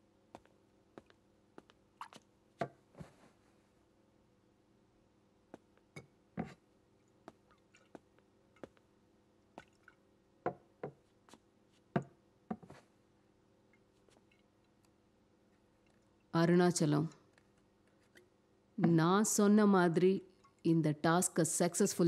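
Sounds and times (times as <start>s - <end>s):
liquid dripping: 1.0s - 2.3s, 7.0s - 8.9s, 9.5s - 10.6s, 13.7s - 14.9s, 20.2s - 20.7s.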